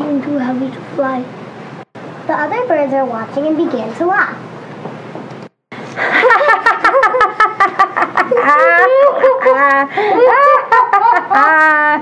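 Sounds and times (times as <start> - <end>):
children laughing: 5.9 - 12.0.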